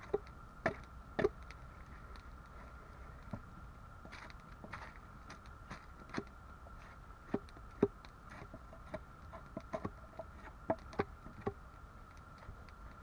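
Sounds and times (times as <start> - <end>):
wood cracking and knocking: 7.3 - 11.6.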